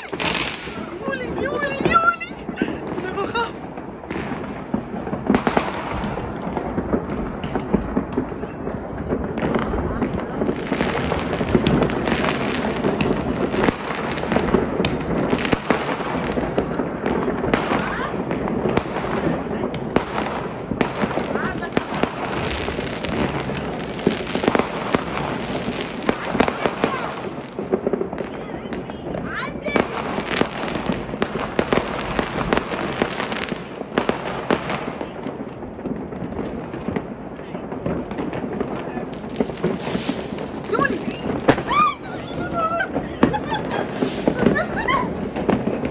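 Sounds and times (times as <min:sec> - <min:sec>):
sharp firecracker cracks: 0:00.0 - 0:01.0, 0:02.8 - 0:29.1, 0:37.7 - 0:42.2, 0:42.9 - 0:45.9
fireworks crackling and banging: 0:00.0 - 0:45.9.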